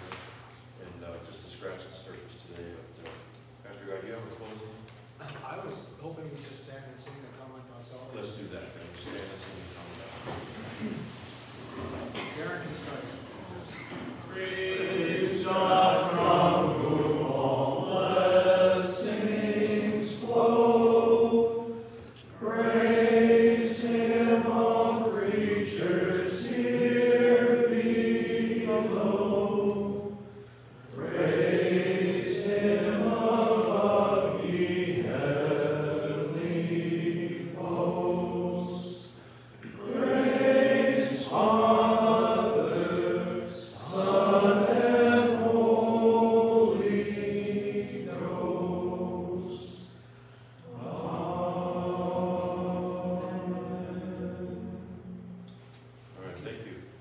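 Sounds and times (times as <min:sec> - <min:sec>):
men singing in unison: 0:14.3 - 0:21.8, 0:31.0 - 0:49.9.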